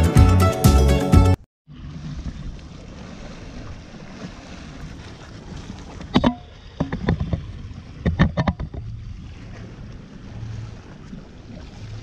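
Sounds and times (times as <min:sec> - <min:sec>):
sharp knocks and clicks: 0:06.2 - 0:07.4, 0:08.0 - 0:08.8.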